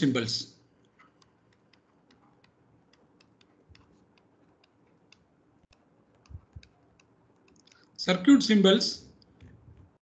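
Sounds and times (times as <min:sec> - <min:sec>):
stylus tapping on tablet: 0:00.8 - 0:07.7
soft low thumps: 0:06.2 - 0:06.7.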